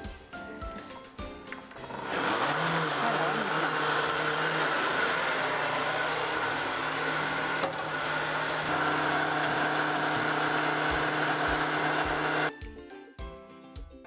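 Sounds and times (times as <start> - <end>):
blender motor running: 1.8 - 12.5.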